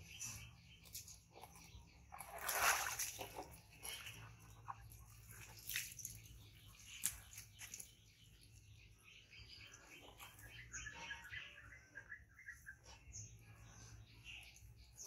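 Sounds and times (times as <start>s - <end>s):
water splashing in plastic tub: 2.1s - 7.9s.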